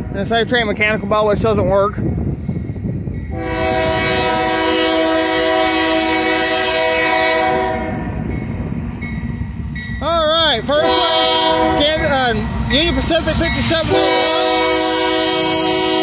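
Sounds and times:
locomotive air horn blast: 3.3 - 8.1, 10.8 - 12.2, 13.6 - 16.0.

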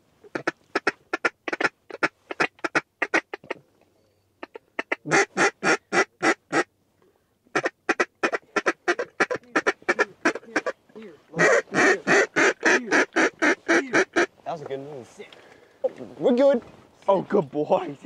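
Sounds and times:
duck calls quacking: 0.2 - 3.6, 4.4 - 6.7, 7.5 - 14.4.

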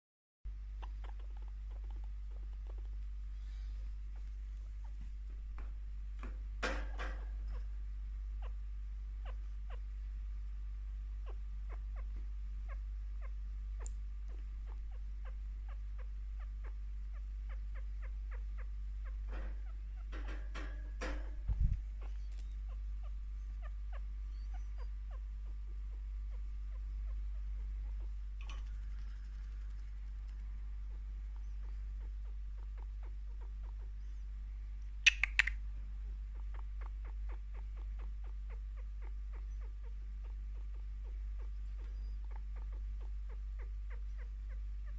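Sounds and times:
chinchilla chirping: 0.5 - 5.8, 6.4 - 44.9
steady low hum: 0.5 - 44.9.

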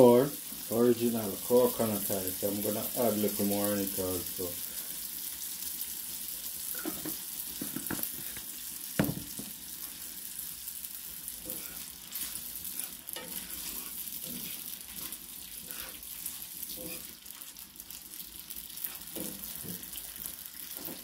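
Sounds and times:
spaghetti sizzling in a pan: 0.0 - 21.0
utensil knocking against pan: 9.0 - 9.5.

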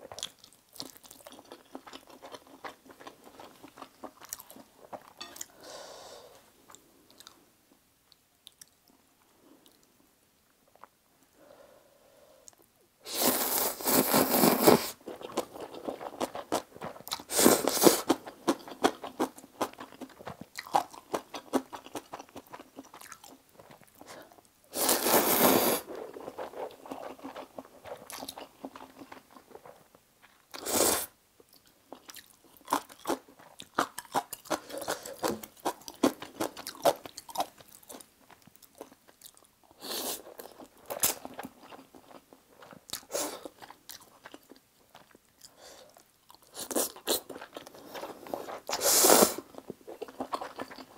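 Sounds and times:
wet chewing: 15.1 - 24.1, 25.9 - 30.6, 31.5 - 39.5, 49.4 - 50.9
noodle slurping: 24.8 - 28.1.

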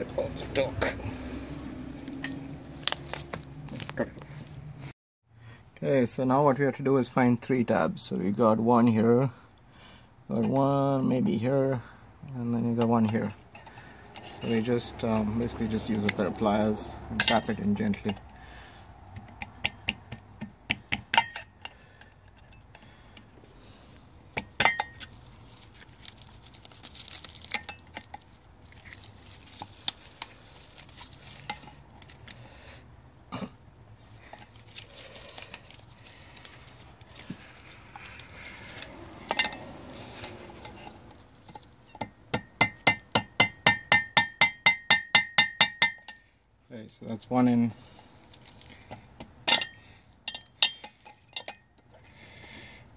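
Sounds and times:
ringing metal taps: 19.6 - 21.8, 40.6 - 46.3.

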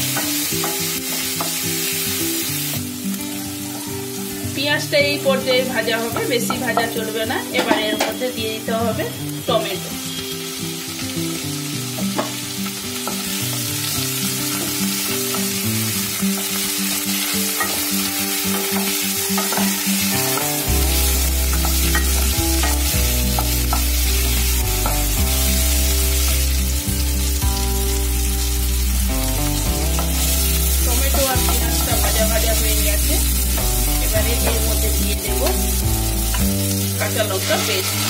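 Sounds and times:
background music: 0.0 - 38.0
vegetables sizzling in hot oil: 0.0 - 38.0
deep bass: 20.7 - 36.7.

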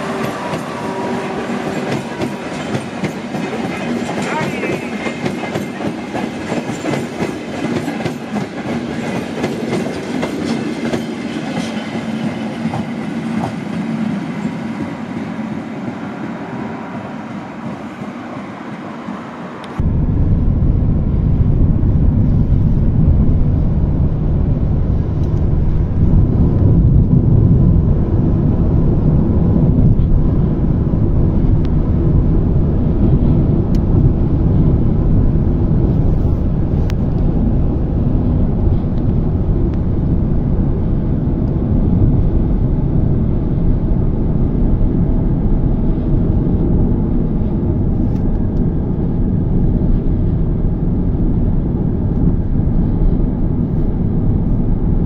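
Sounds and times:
car engine rumble: 19.7 - 55.0.

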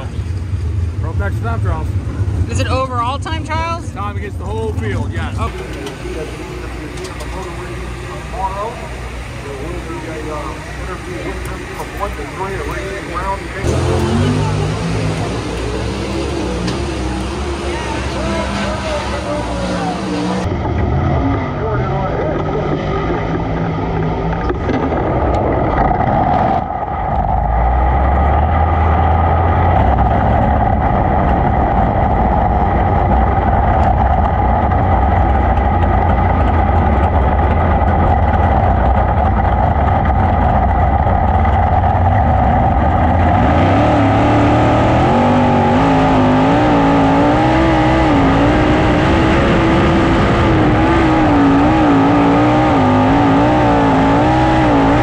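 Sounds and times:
race car engine: 0.0 - 55.0.

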